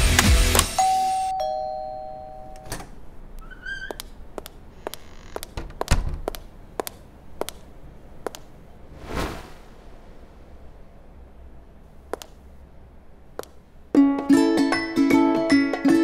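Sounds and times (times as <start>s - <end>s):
two-tone doorbell chime: 0.8s - 2.7s
short squeak: 3.4s - 4.0s.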